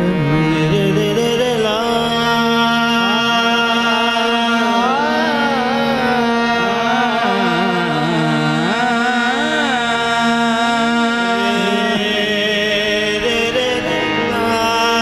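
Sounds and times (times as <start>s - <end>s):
harmonium drone: 0.0s - 15.0s.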